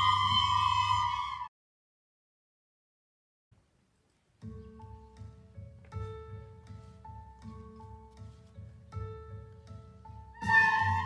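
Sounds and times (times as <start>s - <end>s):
children playing recorders: 0.0s - 1.5s
low rhythmic accompaniment: 4.1s - 11.0s.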